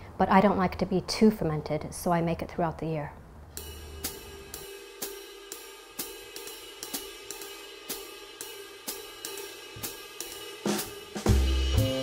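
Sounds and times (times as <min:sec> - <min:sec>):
background music with hi-hat beat: 0:03.6 - 0:12.0.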